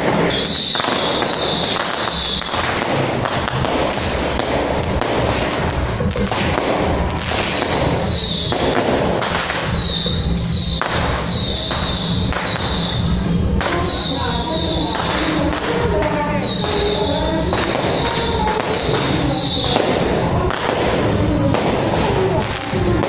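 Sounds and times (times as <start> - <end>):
firecrackers crackling rapidly: 0.0 - 23.0
high falling squeals: 0.2 - 2.7, 7.0 - 8.7, 9.3 - 20.6.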